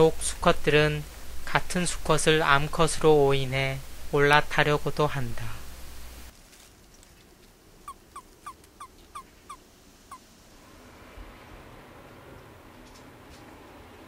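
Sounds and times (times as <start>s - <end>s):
toad chirps: 7.9s - 10.2s.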